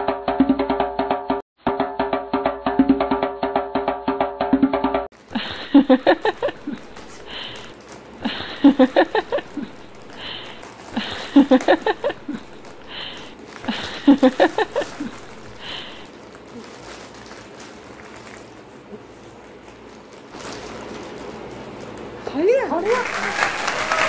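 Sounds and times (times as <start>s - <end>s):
foil snack packets crinkling: 5.1s - 24.0s.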